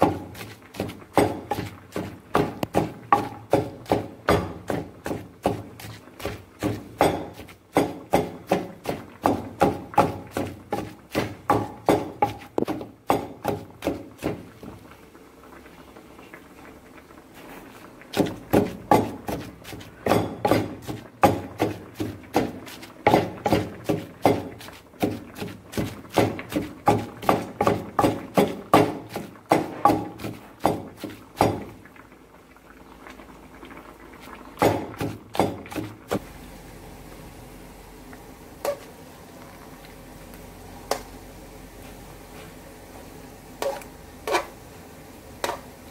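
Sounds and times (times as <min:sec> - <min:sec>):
pestle pounding in a mortar: 0:00.0 - 0:14.4, 0:18.2 - 0:31.8, 0:34.6 - 0:36.2.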